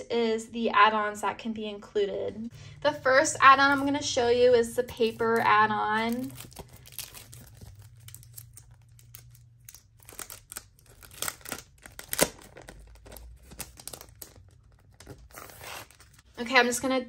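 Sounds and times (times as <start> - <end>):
plastic sleeve crinkling: 4.8 - 16.3.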